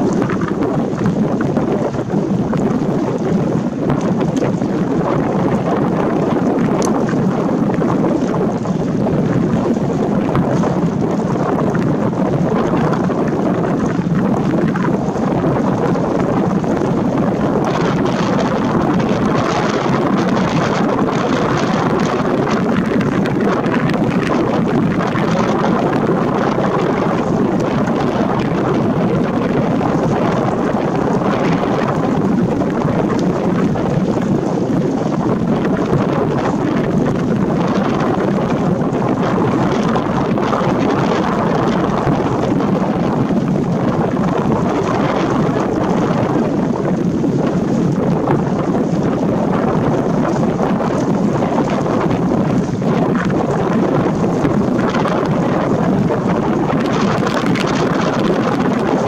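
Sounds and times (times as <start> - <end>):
wind noise on microphone: 0.0 - 59.0.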